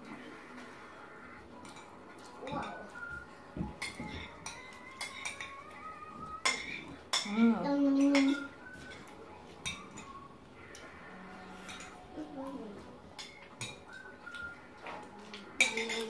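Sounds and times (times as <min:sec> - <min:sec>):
spoons clinking on ceramic bowls: 0:03.8 - 0:10.2, 0:11.6 - 0:12.0, 0:15.3 - 0:16.0.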